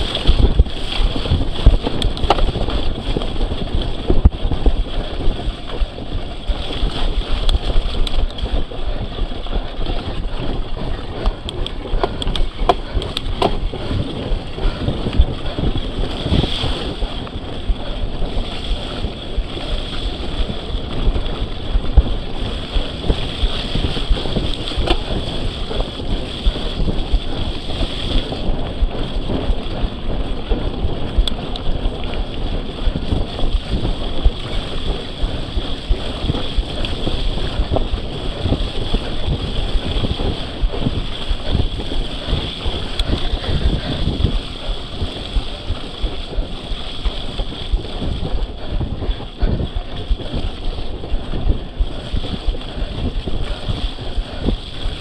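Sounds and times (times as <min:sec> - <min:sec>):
mountain bike rumbling and rattling: 0:00.0 - 0:55.0
wind buffeting microphone: 0:00.0 - 0:55.0.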